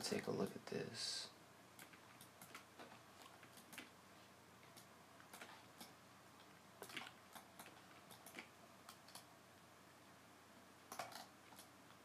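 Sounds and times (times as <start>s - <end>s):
quiet background hiss: 0.0s - 12.0s
computer mouse clicks: 1.8s - 3.9s, 4.6s - 9.3s, 10.9s - 12.0s.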